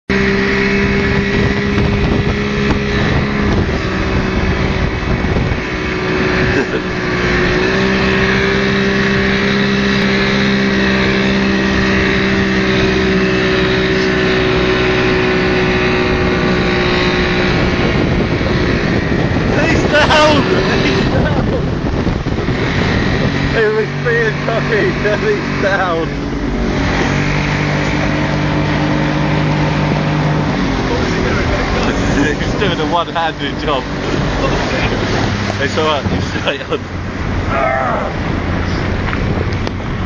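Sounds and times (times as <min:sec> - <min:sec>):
outboard motor running: 0:00.1 - 0:40.0
rush of wind and water: 0:00.1 - 0:40.0.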